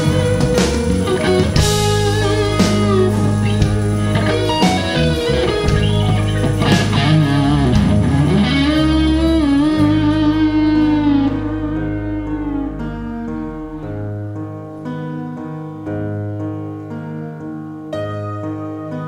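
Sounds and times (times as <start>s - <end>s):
electric guitar solo: 0.0s - 14.7s
bass and keyboard backing: 0.0s - 19.0s.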